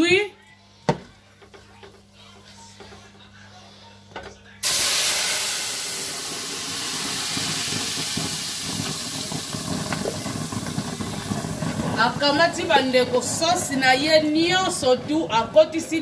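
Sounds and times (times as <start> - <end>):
sauce pouring into pot: 4.6 - 10.9
loud sizzle: 4.6 - 16.0.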